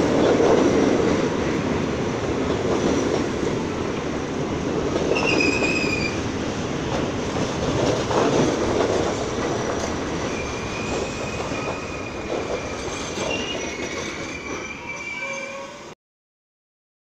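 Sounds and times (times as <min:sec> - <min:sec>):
subway train rumble: 0:00.0 - 0:16.0
wheels squealing: 0:05.1 - 0:06.2, 0:09.6 - 0:15.9.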